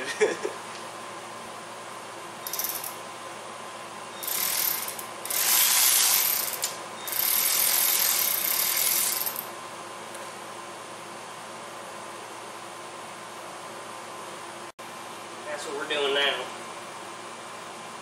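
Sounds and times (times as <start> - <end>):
electric ratchet whirring: 2.4 - 3.0, 4.2 - 9.5.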